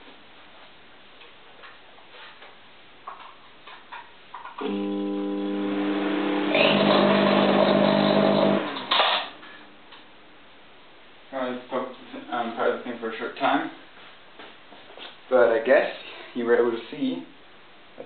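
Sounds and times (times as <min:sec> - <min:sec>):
harsh electrical arcing buzz: 0:04.5 - 0:09.6
microwave oven humming: 0:04.6 - 0:09.5.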